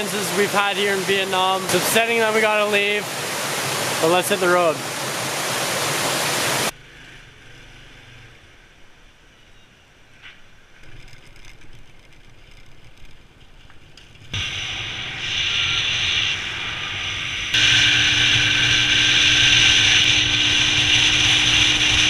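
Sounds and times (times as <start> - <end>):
wind noise: 14.2 - 22.0
motorbike engine running: 17.6 - 22.0.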